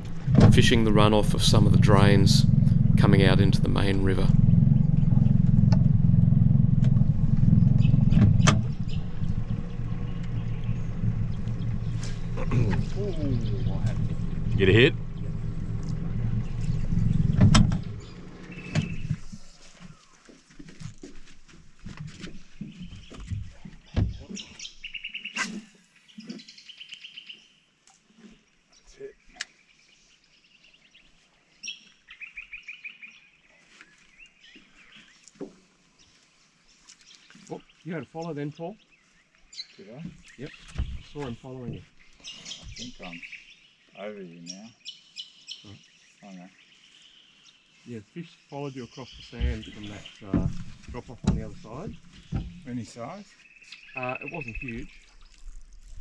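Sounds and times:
birds chirping and calling: 0.0s - 20.2s, 22.6s - 27.5s, 36.0s - 55.4s
outboard motor running: 0.0s - 23.8s, 49.4s - 52.8s.

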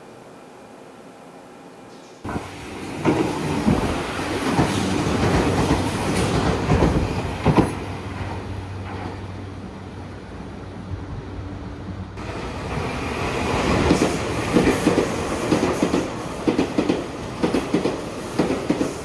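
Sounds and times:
train rumble with low hum: 0.1s - 19.0s
train wheels clacking: 13.6s - 19.0s.

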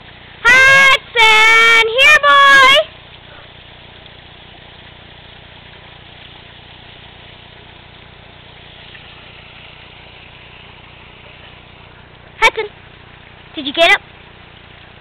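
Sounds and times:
engine-like hum with hiss: 0.0s - 15.0s.

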